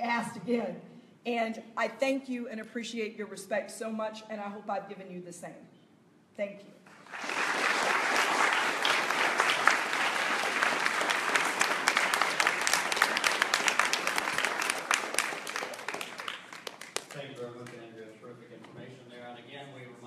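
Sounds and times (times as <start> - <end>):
audience applauding: 6.9 - 17.9.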